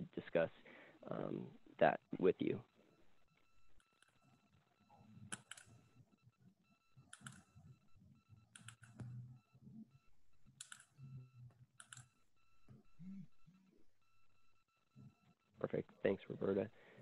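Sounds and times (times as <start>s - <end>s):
computer keyboard clicks: 5.3s - 5.7s, 7.1s - 7.4s, 8.6s - 9.0s, 10.6s - 10.9s, 11.8s - 12.1s.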